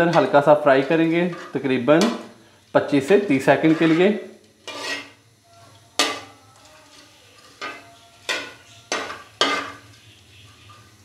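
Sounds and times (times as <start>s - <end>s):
metal spoon knocking pan: 0.0s - 2.3s, 6.0s - 6.4s, 7.4s - 9.9s
spoon stirring spices in oil: 0.0s - 11.0s.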